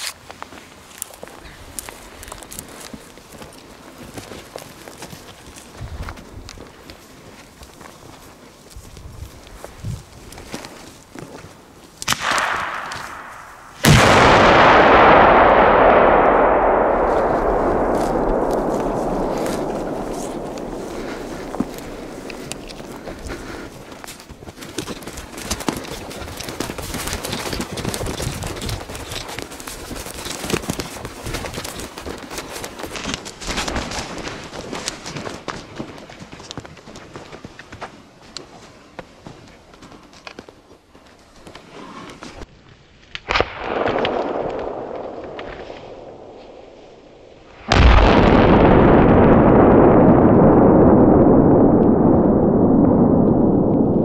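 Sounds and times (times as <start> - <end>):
footsteps crunching over twigs: 0.0 - 14.1, 17.0 - 41.7
firework pop: 12.1 - 23.7
firework blast rumbling: 12.1 - 24.0, 43.4 - 54.0.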